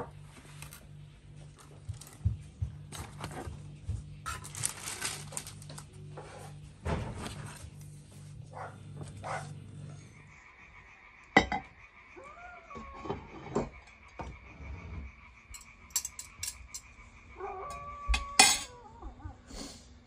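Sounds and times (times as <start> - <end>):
bread rustling in wicker basket: 2.8 - 8.4
animal call: 9.3 - 19.5
glass cup clinking on saucer: 11.4 - 11.7.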